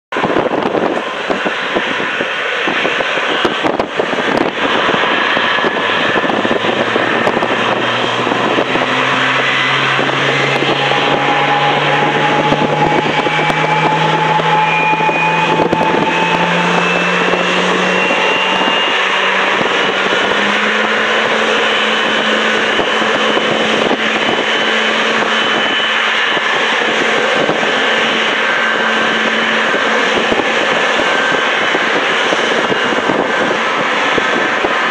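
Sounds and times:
jet engines running: 0.1s - 34.9s.

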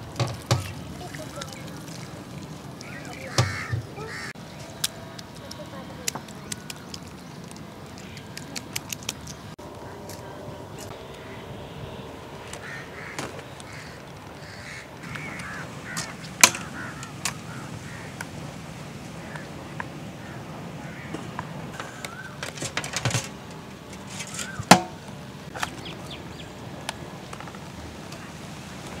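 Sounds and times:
faint bird calls: 1.0s - 4.8s, 9.7s - 18.2s, 19.2s - 22.5s
wire scraping: 21.2s - 25.0s.

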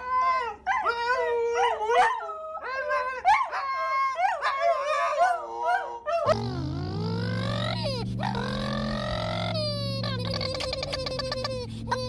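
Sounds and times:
dogs howling: 0.0s - 6.5s.

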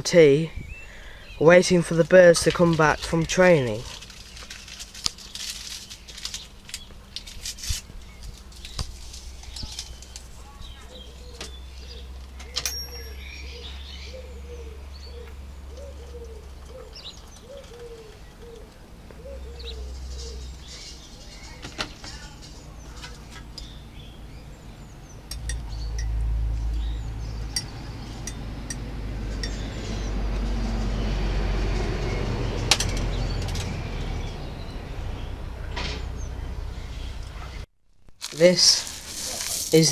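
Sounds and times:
pigeons cooing: 9.4s - 23.6s
low rumble: 23.7s - 37.7s.

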